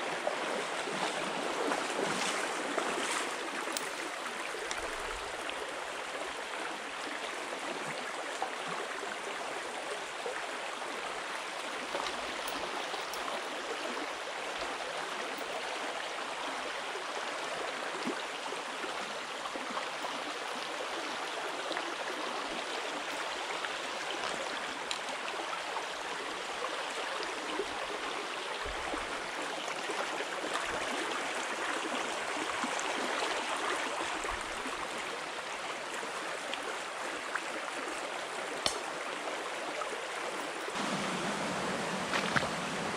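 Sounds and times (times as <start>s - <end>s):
stream rushing over gravel: 0.1s - 5.8s, 10.0s - 17.1s, 19.0s - 37.0s, 38.6s - 42.9s.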